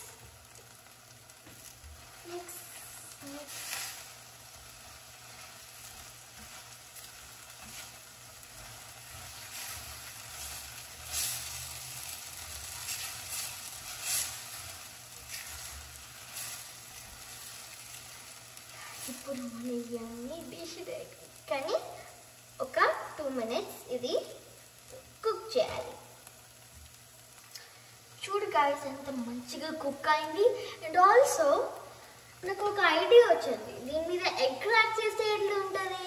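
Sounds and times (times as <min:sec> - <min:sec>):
curry sizzling in a pan: 0:00.0 - 0:36.0
spatula scraping a pan: 0:01.6 - 0:19.3.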